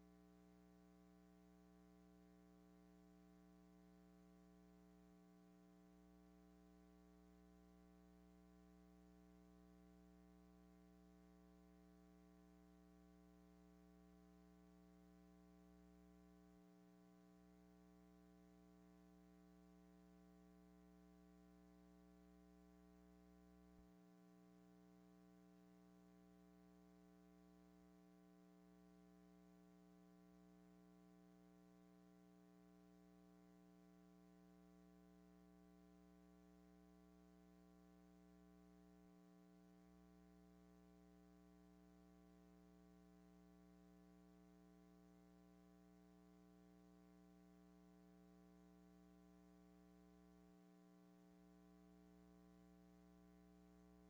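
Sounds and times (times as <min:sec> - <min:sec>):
faint electrical hum with hiss: 0:00.0 - 0:54.0.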